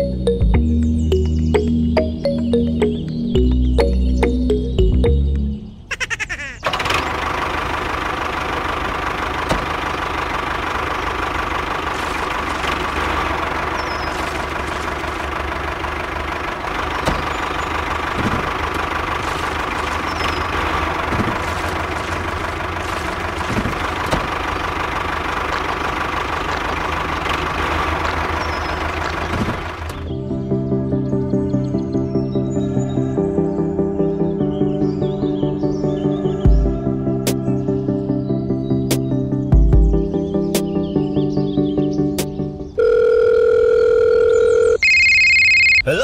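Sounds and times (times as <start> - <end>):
small tractor engine running: 6.6 - 30.2, 42.7 - 46.0.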